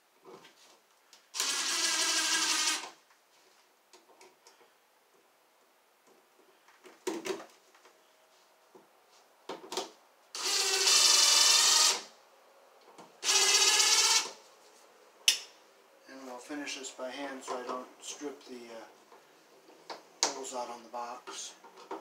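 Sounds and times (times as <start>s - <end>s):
cordless drill motor whine: 1.4s - 3.0s, 10.4s - 12.1s, 13.2s - 14.4s.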